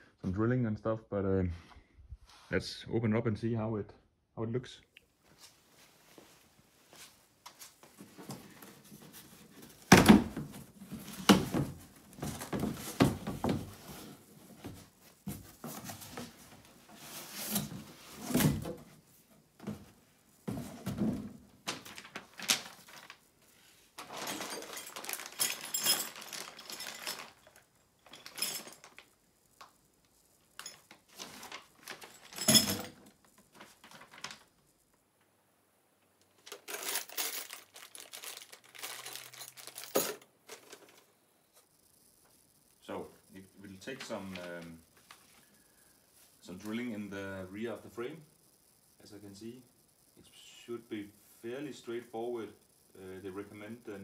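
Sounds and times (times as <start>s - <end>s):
plastic bag crinkling: 21.6s - 23.2s, 24.0s - 29.2s, 30.6s - 32.4s, 33.3s - 34.6s, 36.4s - 41.0s.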